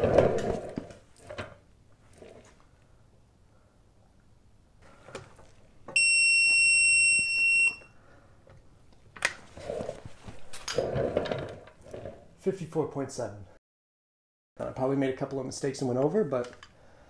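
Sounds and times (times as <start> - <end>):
high electronic beep: 6.0 - 7.9.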